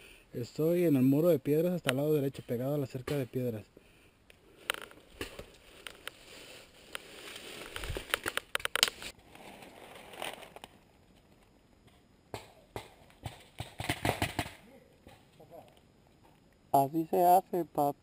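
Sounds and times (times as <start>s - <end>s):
dry leaves rustling and crackling: 4.7s - 10.8s
sharp clicks: 7.8s - 9.1s.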